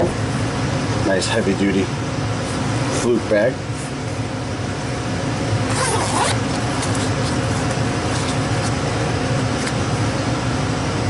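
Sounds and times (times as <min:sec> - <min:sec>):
machinery hum: 0:00.0 - 0:11.0
zipper pulled open: 0:05.7 - 0:08.8.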